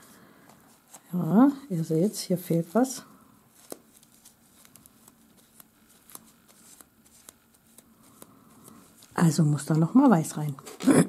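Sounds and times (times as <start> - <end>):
paper rubbing on nail: 3.5 - 9.2.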